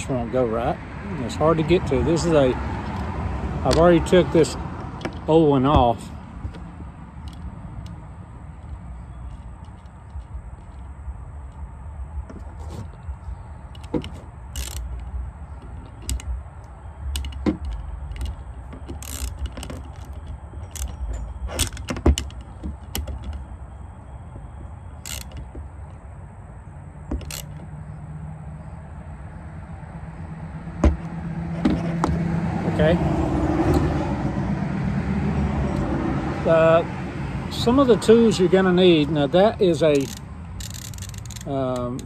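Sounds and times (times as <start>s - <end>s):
metallic clicks and knocks of tools: 17.1s - 23.4s, 39.8s - 42.0s.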